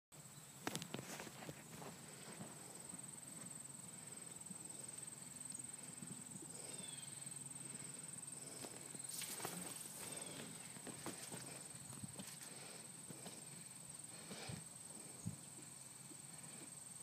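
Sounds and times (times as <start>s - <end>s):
distant horse hoofbeats on grass: 8.4s - 13.6s.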